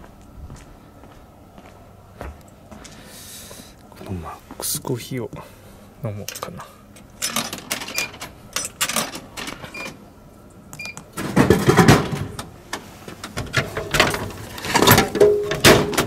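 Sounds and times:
coins clinking into coin slot: 0:07.2 - 0:09.9
can clattering through machine: 0:13.6 - 0:16.0.

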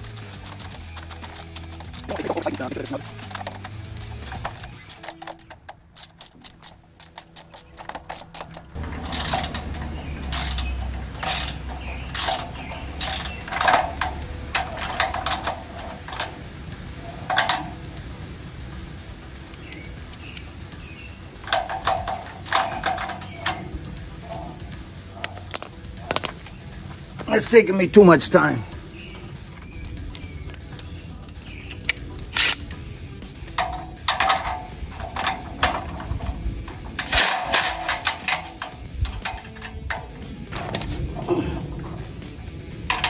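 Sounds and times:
ratchet wrench clicking: 0:00.0 - 0:16.3, 0:19.5 - 0:20.6, 0:25.1 - 0:26.6, 0:29.6 - 0:32.7, 0:37.0 - 0:41.0.

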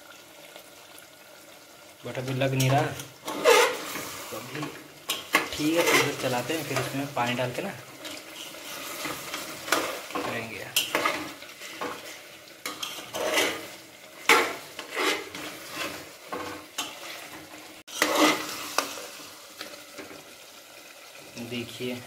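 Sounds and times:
food sizzling in oil: 0:00.0 - 0:22.0
metal ladle scraping pot: 0:02.6 - 0:07.1, 0:08.0 - 0:19.3.

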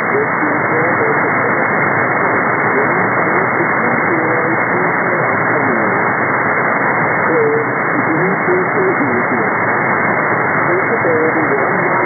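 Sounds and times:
faint voice on radio: 0:00.0 - 0:01.8, 0:02.6 - 0:06.0, 0:07.3 - 0:09.6, 0:10.6 - 0:12.0
radio static hiss: 0:00.0 - 0:12.0.

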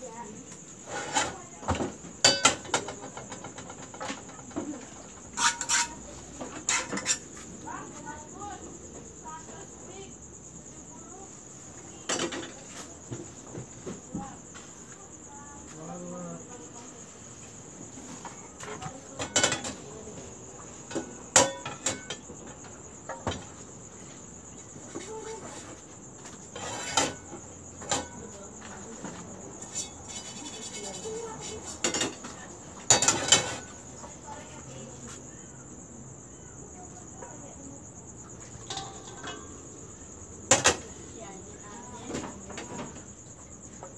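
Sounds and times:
frying pans knocking on stove: 0:01.0 - 0:04.6, 0:18.7 - 0:19.8, 0:20.8 - 0:23.6, 0:31.4 - 0:33.7, 0:40.4 - 0:40.9.

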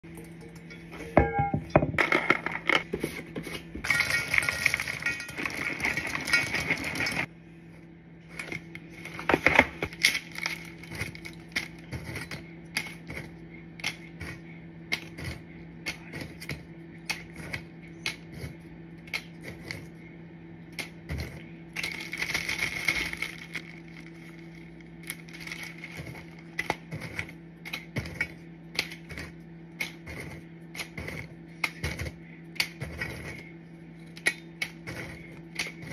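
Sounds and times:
crackers clattering into steel bowl: 0:03.8 - 0:07.3, 0:09.3 - 0:12.9, 0:21.8 - 0:26.8
crackers clicking and clinking: 0:03.8 - 0:07.3, 0:09.2 - 0:14.2, 0:21.7 - 0:33.4, 0:34.0 - 0:35.9.

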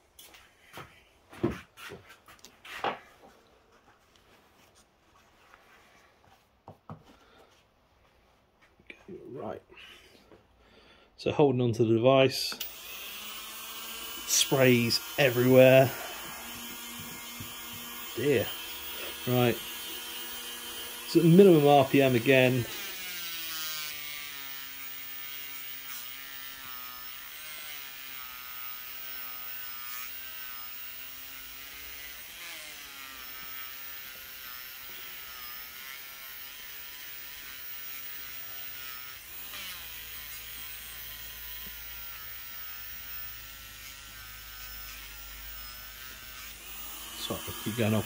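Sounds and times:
rotary tool whine polishing metal: 0:12.5 - 0:48.0.

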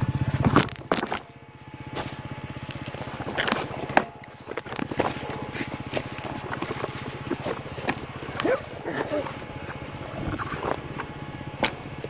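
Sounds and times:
motorcycle engine idling: 0:00.0 - 0:12.0
motorcycle hitting ground knocks: 0:00.3 - 0:08.4
scuffing: 0:01.9 - 0:09.5.

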